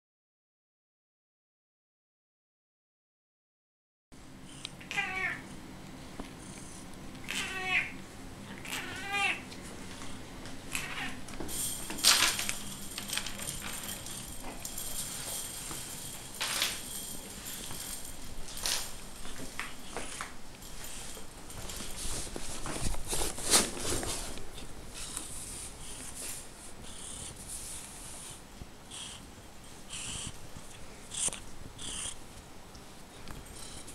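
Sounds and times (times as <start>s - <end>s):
cat meowing: 4.8s - 5.4s, 7.2s - 9.5s, 10.7s - 11.2s
rustles and scuffs of handling: 10.9s - 26.7s.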